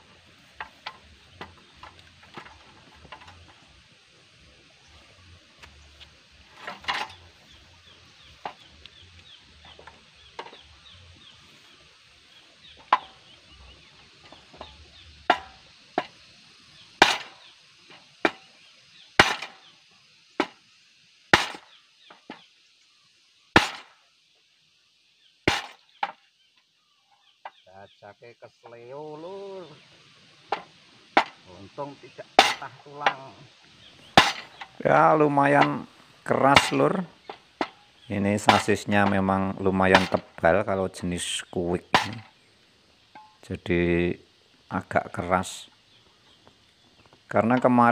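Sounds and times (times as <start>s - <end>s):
hammer striking metal: 39.9s - 40.3s.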